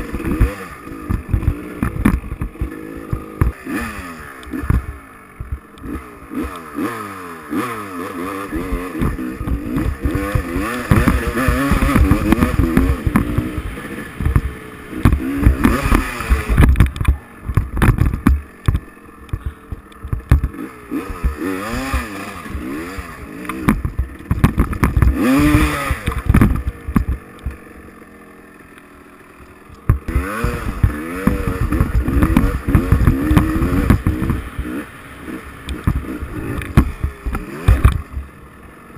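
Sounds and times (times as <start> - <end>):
dirt bike engine revving: 0.0 - 38.9.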